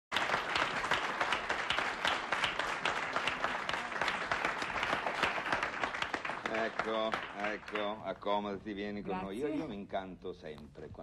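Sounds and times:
audience applauding: 0.1s - 8.2s.

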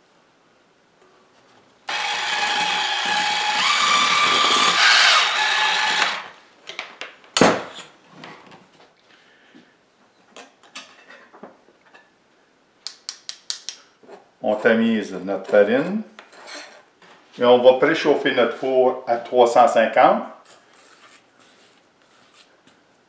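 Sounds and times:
electric hand mixer running: 1.9s - 6.3s.

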